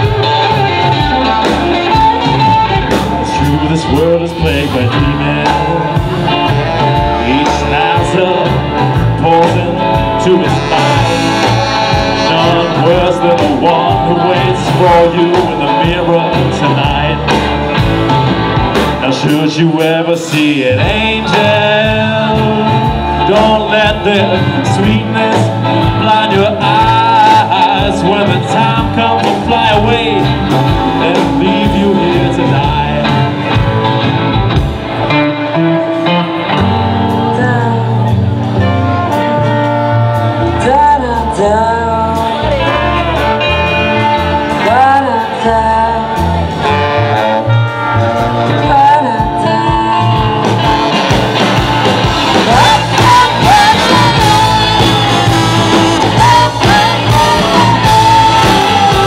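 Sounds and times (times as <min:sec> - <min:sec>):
live rock band playing: 0:00.0 - 0:59.0
woman singing: 0:40.4 - 0:42.5, 0:44.5 - 0:46.4, 0:48.5 - 0:50.8, 0:52.3 - 0:59.0.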